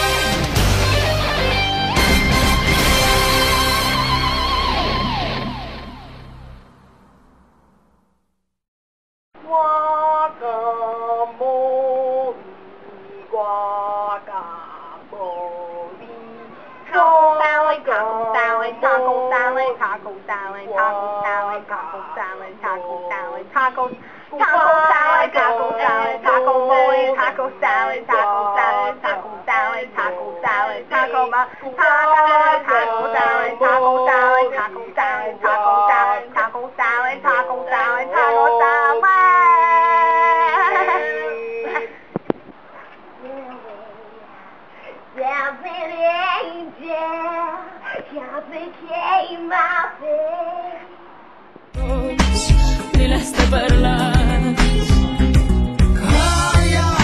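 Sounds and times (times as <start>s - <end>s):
pop music with heavy beat: 0.0s - 5.8s, 51.8s - 57.0s
pop song with singer: 0.0s - 5.9s, 9.4s - 42.2s, 43.2s - 51.0s, 51.7s - 57.0s.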